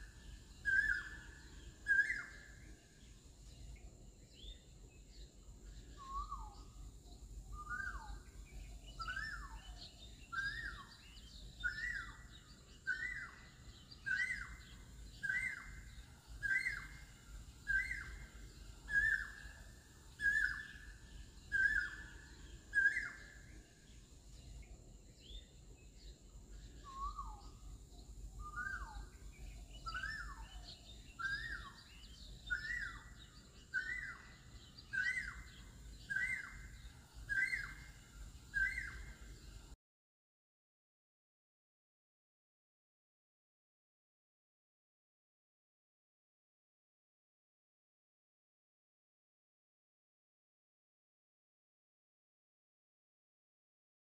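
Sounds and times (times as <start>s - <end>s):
birds chirping faintly: 0.0s - 39.8s.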